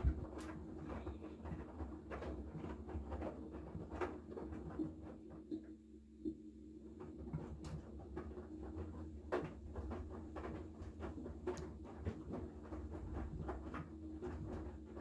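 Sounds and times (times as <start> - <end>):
washing machine motor hum: 0.0 - 15.0.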